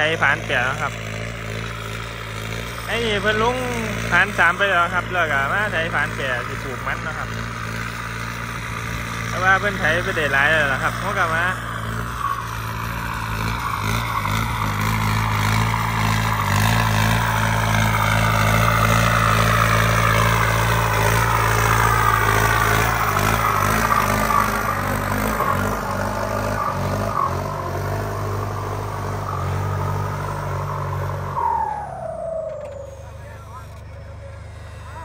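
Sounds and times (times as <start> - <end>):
tractor diesel engine under load: 0.0 - 35.0
turbo whistling: 20.9 - 33.6.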